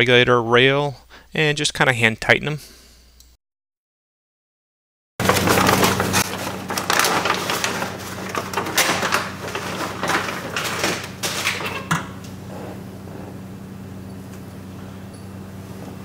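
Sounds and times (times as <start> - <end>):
plastic sheet crinkling and rustling: 5.2 - 11.9.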